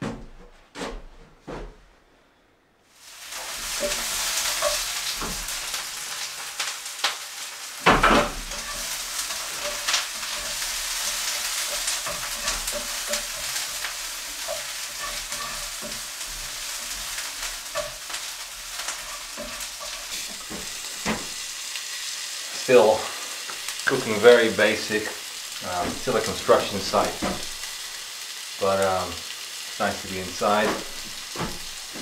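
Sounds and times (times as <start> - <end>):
food sizzling in a frying pan: 2.9 - 32.0
utensil clinking and scraping pan: 8.0 - 21.4.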